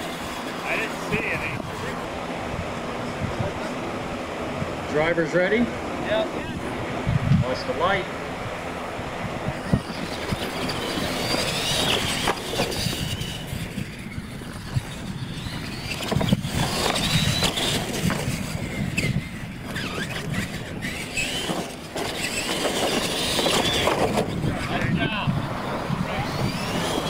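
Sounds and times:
electric motors whining: 0.0s - 27.0s
toy trucks knocking on ramps: 21.3s - 24.4s.

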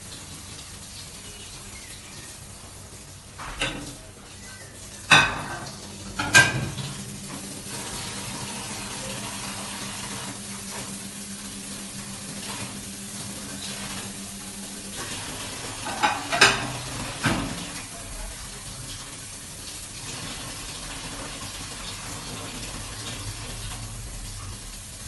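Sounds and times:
tap water running into sink: 0.0s - 25.0s
plate clattering against sink: 5.1s - 7.0s, 15.8s - 17.6s.

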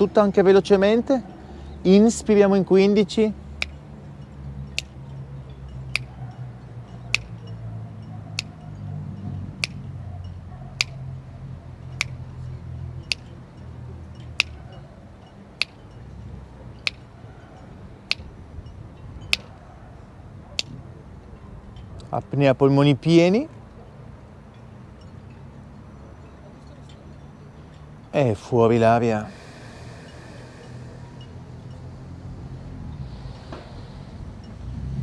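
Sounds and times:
sharp ticks: 4.7s - 5.0s, 5.9s - 6.2s, 6.9s - 7.6s, 8.3s - 8.6s, 9.6s - 10.0s, 10.8s - 11.1s, 11.9s - 12.3s, 13.0s - 13.4s, 14.2s - 14.8s, 15.5s - 16.0s, 16.8s - 17.1s, 18.0s - 18.3s, 19.3s - 19.6s.

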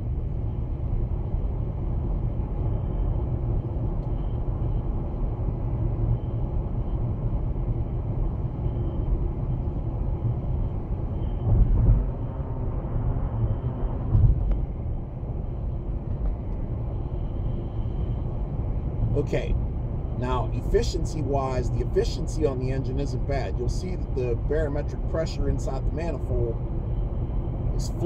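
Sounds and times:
road and engine noise in car: 0.0s - 28.0s.

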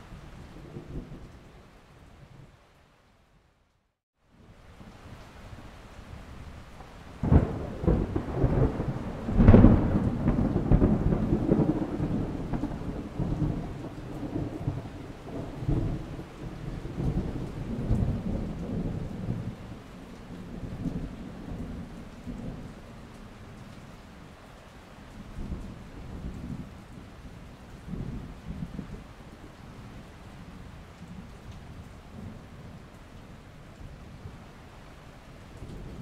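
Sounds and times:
thunder rumbling: 7.2s - 19.8s.

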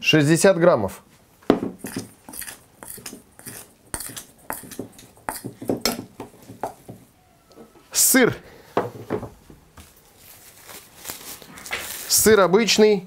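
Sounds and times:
metal spoon scraping bowl: 1.8s - 6.0s.

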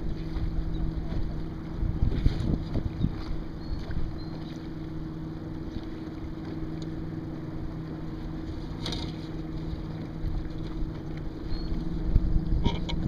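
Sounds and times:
wind on microphone: 0.0s - 4.2s
steady low hum: 0.0s - 13.0s
water washing against hull: 0.0s - 13.0s.

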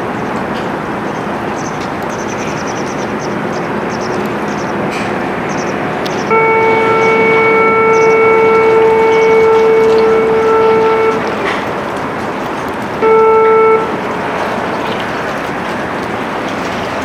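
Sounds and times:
turbine and waterjet roar: 0.0s - 17.0s
ship's horn blast: 4.8s - 15.4s.

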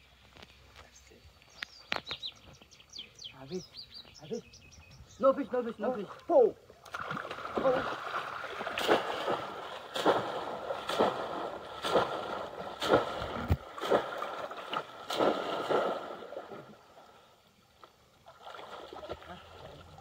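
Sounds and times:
water sloshing: 5.7s - 20.0s
fish trap splashing into water: 6.9s - 16.8s.

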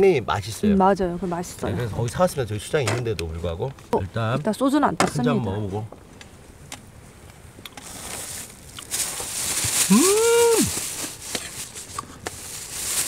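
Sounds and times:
faint hiss: 5.6s - 13.0s
man humming in delight: 9.9s - 10.8s.

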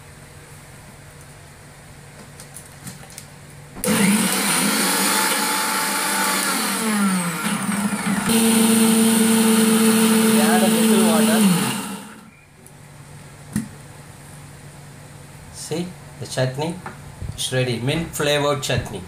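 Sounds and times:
mixer grinder motor whine: 3.8s - 12.3s.

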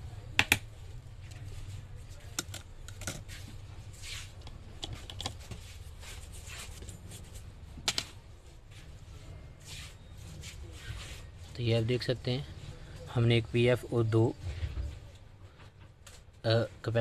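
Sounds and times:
soft rubbing: 3.1s - 13.1s.

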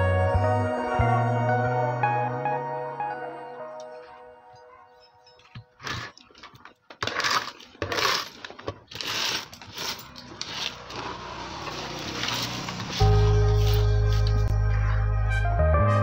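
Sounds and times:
small metal parts clinking: 5.3s - 11.1s.

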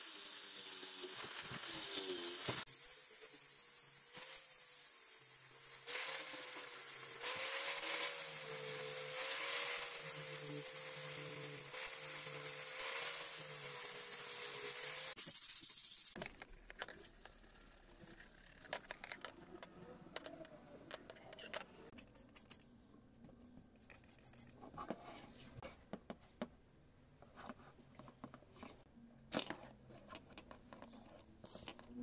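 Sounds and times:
angle grinder cutting metal: 0.0s - 16.2s.

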